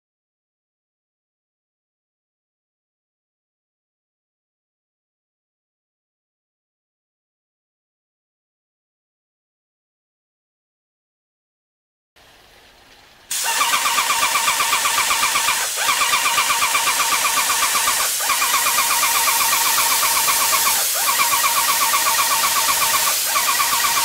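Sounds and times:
hiss of spray: 13.3 - 24.0
paint sprayer pump pulsing: 13.3 - 24.0.

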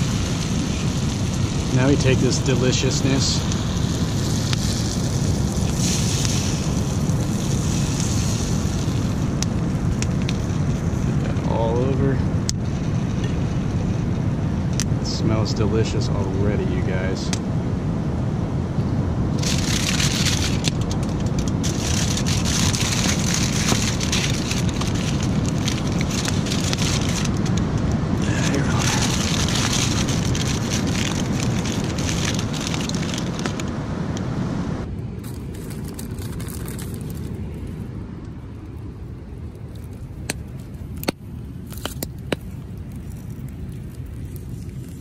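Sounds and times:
aluminium foil crinkling: 0.0 - 11.8, 19.4 - 27.6, 28.2 - 33.7, 35.2 - 37.9, 39.5 - 45.0
campfire crackling and popping: 0.0 - 17.6, 19.2 - 45.0
low rumble: 0.0 - 45.0.

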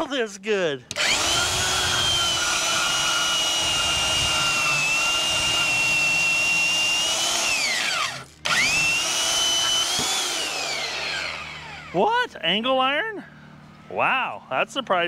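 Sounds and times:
band saw motor whining: 0.8 - 12.4.

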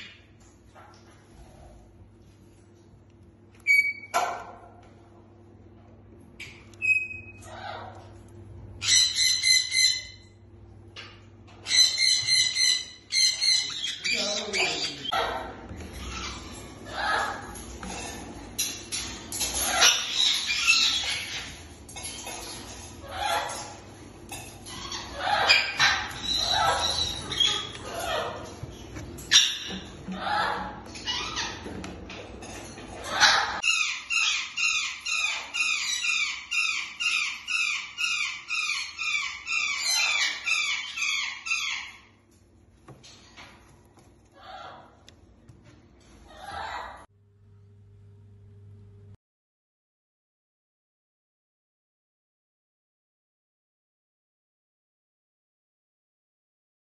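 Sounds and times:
parrots squawking: 6.4 - 8.2, 8.8 - 10.4, 11.0 - 42.2, 46.2 - 47.1.

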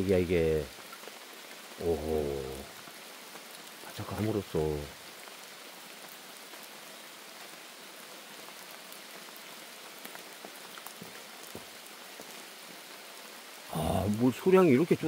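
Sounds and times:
raindrop ticks: 0.0 - 6.7, 8.4 - 13.1
rain hissing: 0.0 - 15.0.

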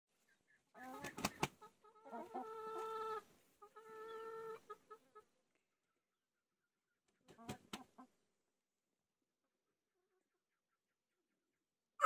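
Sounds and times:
chickens calling: 0.2 - 8.3
chickens clucking: 0.2 - 8.4, 9.3 - 12.0.

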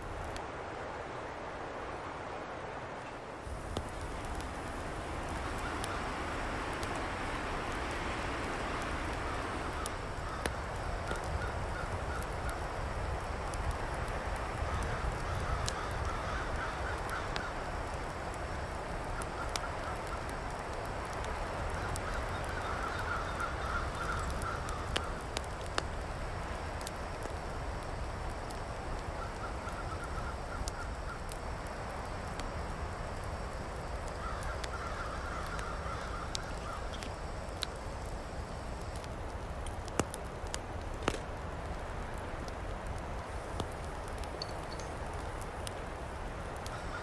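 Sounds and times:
forest background: 0.0 - 47.0
wood fire crackling: 0.0 - 47.0.

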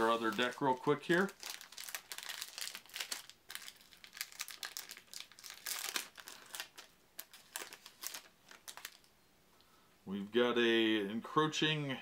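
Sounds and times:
plastic wrapper crinkling: 0.0 - 9.1.

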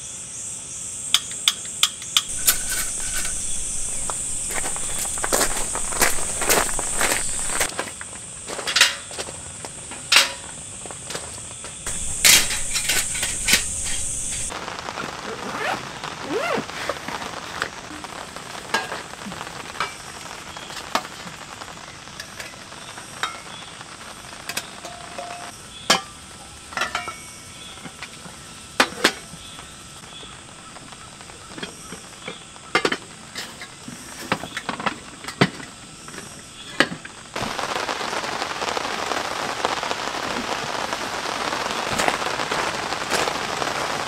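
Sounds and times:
insect buzzing: 2.3 - 7.7, 11.9 - 14.5
metal cups clinking: 2.3 - 7.7, 11.9 - 14.5.

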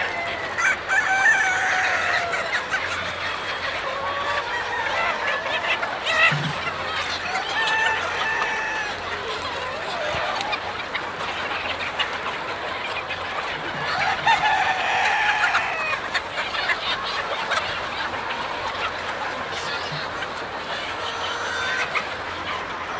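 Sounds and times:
rooster crowing: 0.0 - 2.4, 7.5 - 9.0
chickens clucking: 0.0 - 22.9.

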